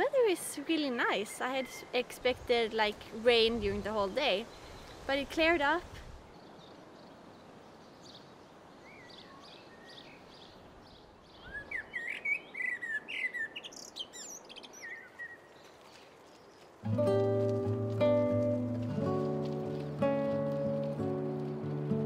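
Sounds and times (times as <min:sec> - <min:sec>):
songbirds singing: 0:00.8 - 0:16.8.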